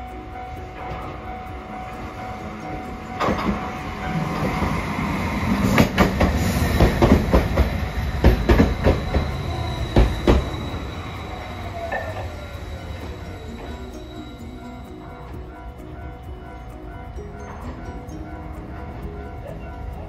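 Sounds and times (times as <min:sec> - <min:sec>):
wheels clacking over rail joints: 0:00.0 - 0:14.5
tram running rumble: 0:00.0 - 0:20.0.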